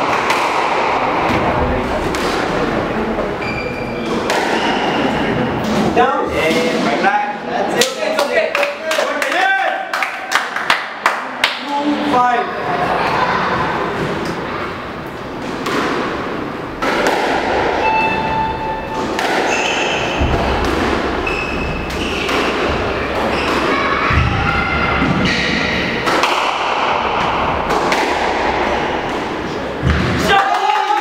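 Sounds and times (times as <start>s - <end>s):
squash ball thuds: 19.0s - 24.4s.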